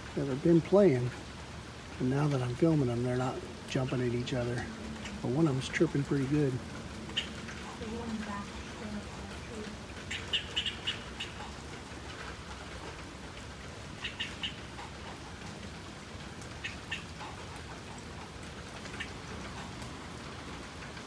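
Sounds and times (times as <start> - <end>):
rain hissing: 0.0 - 21.0
squirrel chirping: 7.1 - 7.8, 10.1 - 11.5, 14.0 - 14.7.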